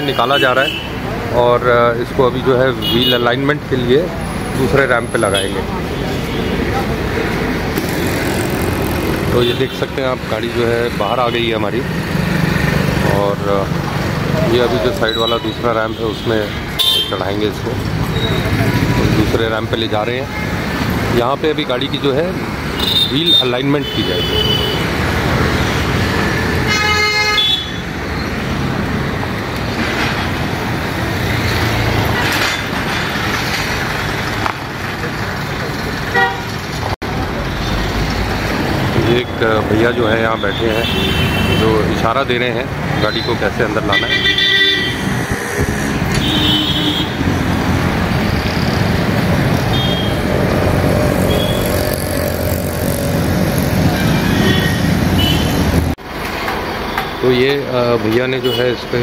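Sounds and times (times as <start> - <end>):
street traffic: 0.0 - 59.0
car horn tooting: 22.8 - 24.9, 26.7 - 27.9, 36.1 - 36.6, 43.1 - 45.2, 46.1 - 47.2, 49.7 - 50.3, 54.0 - 55.6, 58.4 - 58.8.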